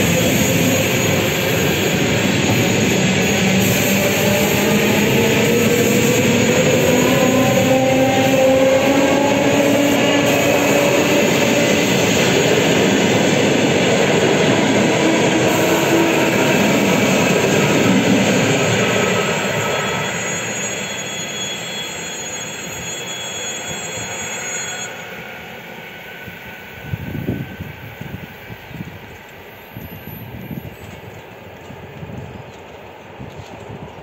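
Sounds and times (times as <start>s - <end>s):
train wheels rumbling on rail: 0.0s - 34.0s
thin high whine: 14.8s - 27.4s.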